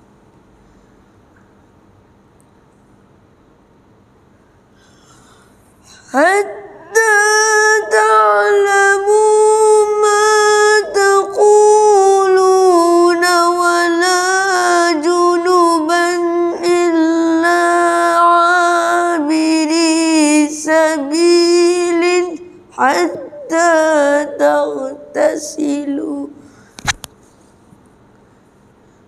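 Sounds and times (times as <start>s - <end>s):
boy reciting melodically: 5.8s - 26.6s.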